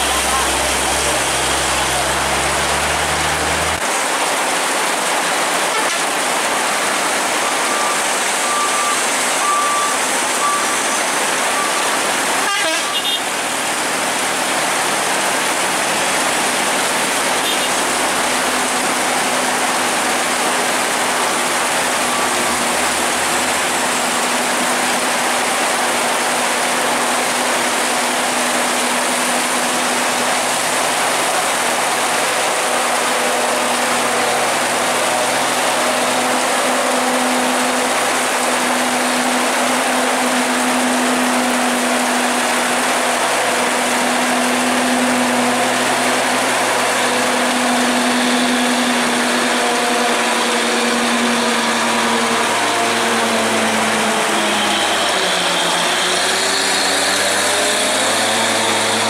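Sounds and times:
trucks and motorcycles droning: 0.0s - 3.9s, 13.7s - 59.0s
heavy rain pouring: 0.0s - 59.0s
short beeps: 7.7s - 11.8s.

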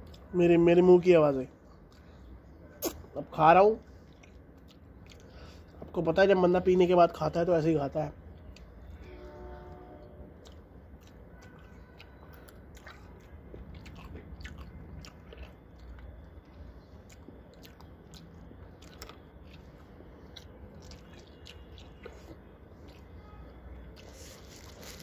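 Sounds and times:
person chewing food: 3.9s - 5.8s, 10.4s - 25.0s.

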